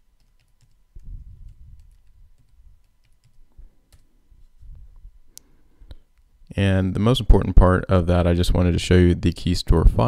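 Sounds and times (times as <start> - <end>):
keyboard typing: 0.0 - 4.1.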